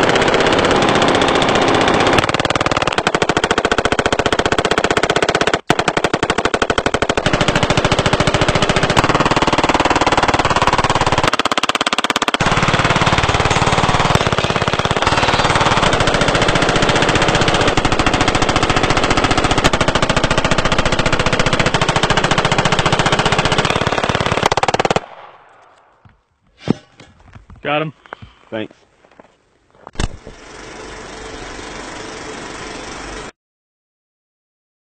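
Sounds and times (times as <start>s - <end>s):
automatic gunfire: 0.0s - 25.4s.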